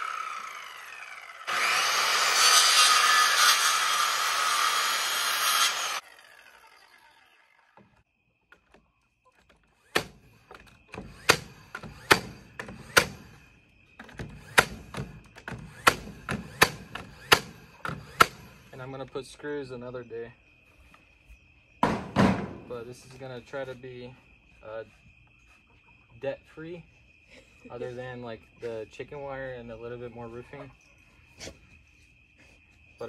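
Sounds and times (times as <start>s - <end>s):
saw blade winding down: 0.0s - 7.8s
circular saw cutting board: 0.0s - 8.0s
knocks on wooden frame: 21.8s - 22.7s.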